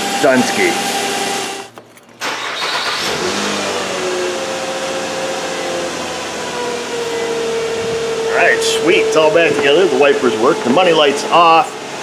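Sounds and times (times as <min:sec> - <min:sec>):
car engine running steadily: 0:02.9 - 0:12.0.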